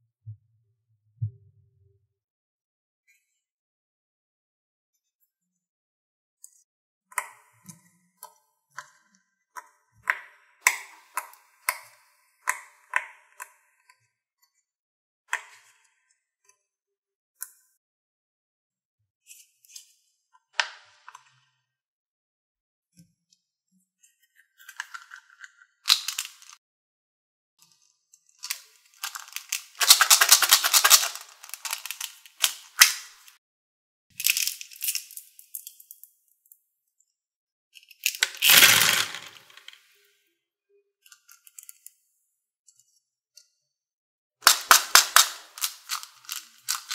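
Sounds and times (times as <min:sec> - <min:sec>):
balls rattling in plastic cup: 0:25.9 - 0:26.6, 0:28.5 - 0:33.0, 0:38.0 - 0:39.8, 0:44.4 - 0:46.9.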